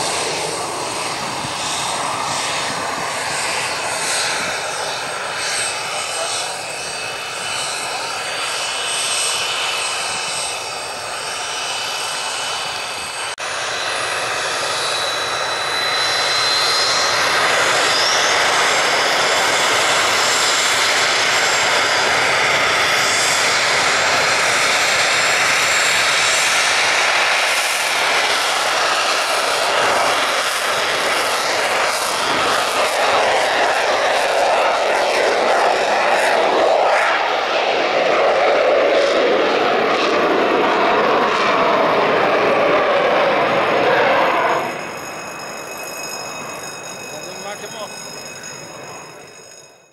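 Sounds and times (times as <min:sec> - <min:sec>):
jet engines whining: 0:00.0 - 0:49.8.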